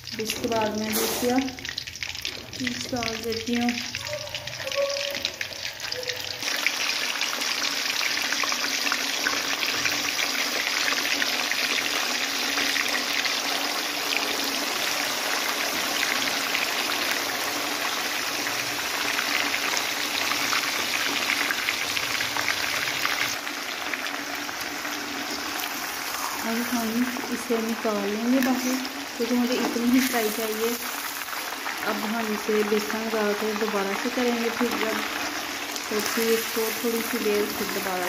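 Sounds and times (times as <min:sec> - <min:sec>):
fish sizzling in hot oil: 0:00.0 - 0:38.0.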